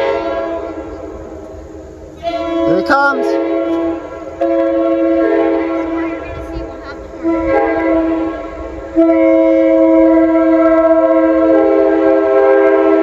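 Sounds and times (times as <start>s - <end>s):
locomotive air horn chord: 0.0s - 13.0s.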